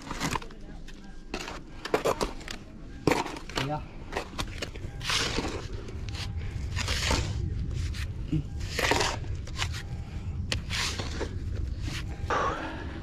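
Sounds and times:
shovel digging gravelly soil: 5.0s - 9.8s.

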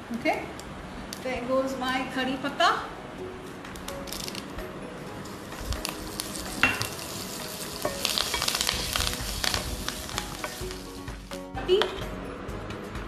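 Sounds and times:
hot oil sizzling and crackling: 3.8s - 11.6s
curry leaves sputtering in fat: 5.2s - 11.3s.

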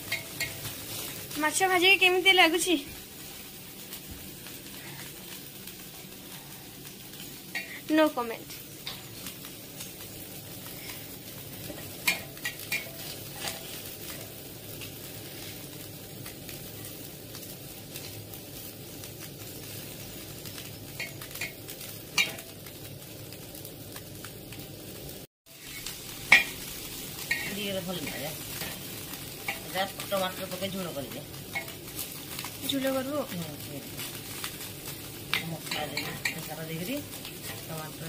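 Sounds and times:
shrimp sizzling in oil: 0.0s - 38.0s
metal spatula scraping pan: 11.6s - 13.9s.

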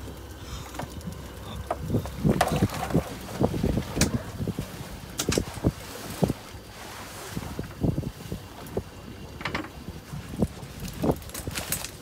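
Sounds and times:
steady low rumble: 0.0s - 12.0s
knocks and clatter of fishing gear: 0.6s - 4.2s, 5.1s - 5.7s, 9.4s - 12.0s.

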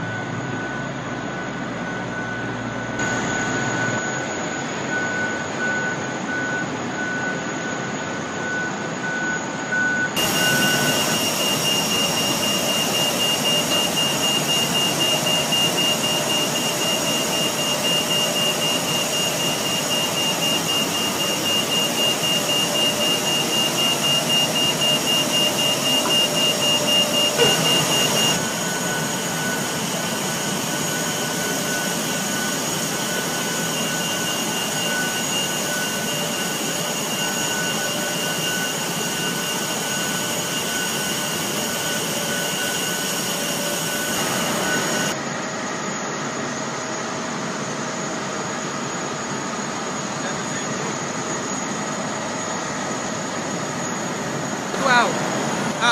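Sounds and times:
rapid warning beeps: 0.0s - 45.2s.

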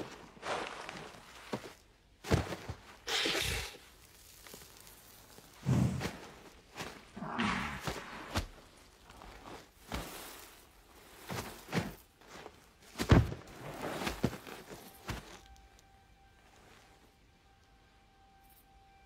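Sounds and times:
bodies thudding on sand: 2.2s - 2.8s, 5.6s - 8.7s, 11.2s - 15.4s
throaty animal grunt: 7.2s - 8.4s.

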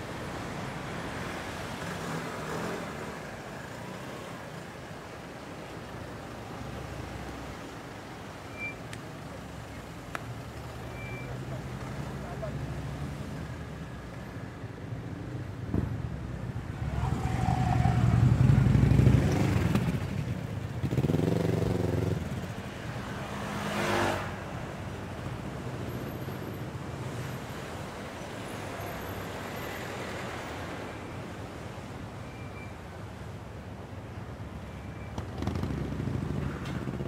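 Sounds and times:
vehicles passing close: 0.0s - 37.0s.

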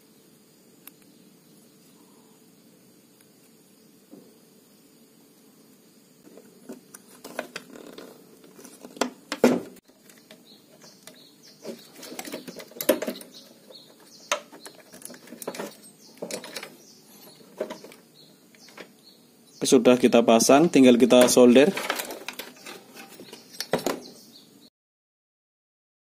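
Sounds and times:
hands handling electronic part: 6.3s - 18.0s, 21.0s - 24.1s.

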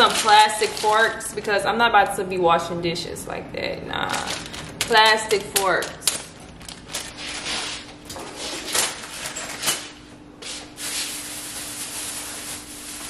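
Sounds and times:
plastic bags rustling: 0.0s - 1.4s, 4.0s - 13.0s.

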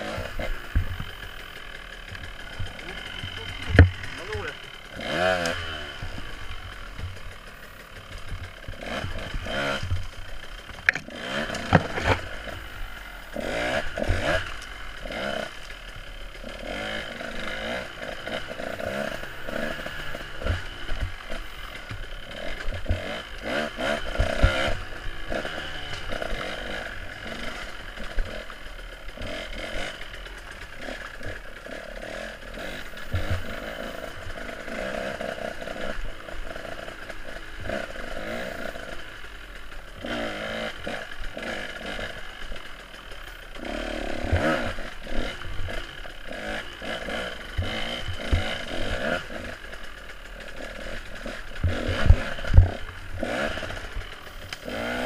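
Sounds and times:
dirt bike engine revving: 0.0s - 55.0s
bike clattering over rough ground: 0.3s - 12.7s.

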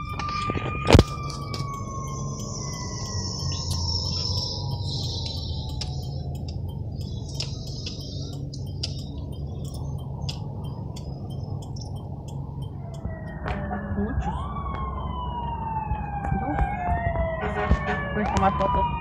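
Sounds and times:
fire engine sirens wailing: 0.0s - 19.0s
traffic rumbling: 0.0s - 19.0s
high chirping: 1.0s - 13.9s.

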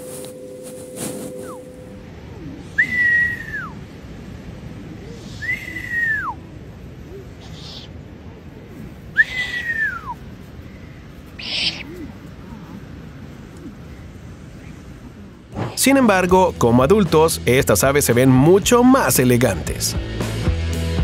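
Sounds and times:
whistles sliding down: 0.0s - 2.0s, 2.7s - 3.8s, 5.2s - 6.4s, 9.2s - 10.2s.

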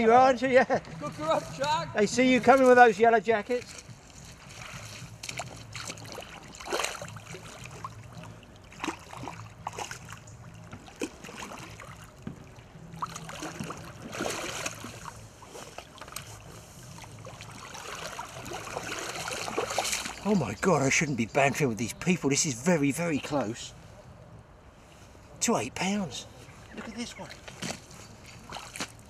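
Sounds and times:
water splashing and sloshing: 0.8s - 21.0s, 26.3s - 29.0s
boots wading in water: 2.3s - 20.5s, 26.6s - 29.0s.

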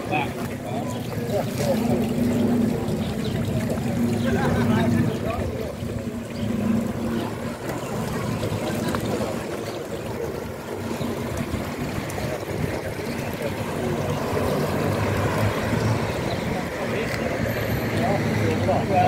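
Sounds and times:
water trickling in fountain: 0.0s - 19.0s.

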